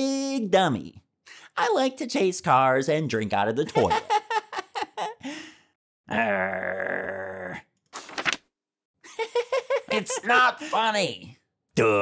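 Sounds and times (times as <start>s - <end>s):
cartoon laughter: 3.6s - 5.2s, 9.1s - 10.6s.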